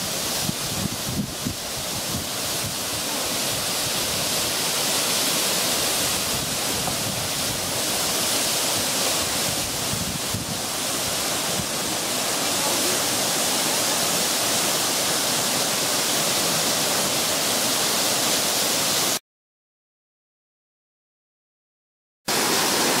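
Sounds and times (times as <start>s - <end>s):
fountain water splashing into pool: 0.0s - 19.2s, 22.3s - 23.0s
wind buffeting microphone: 0.2s - 4.5s, 6.0s - 12.0s.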